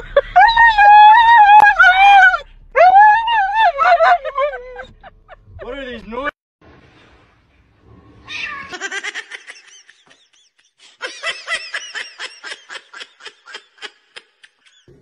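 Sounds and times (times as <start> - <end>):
high-pitched giggling laughter: 3.7 - 5.4, 8.7 - 14.9.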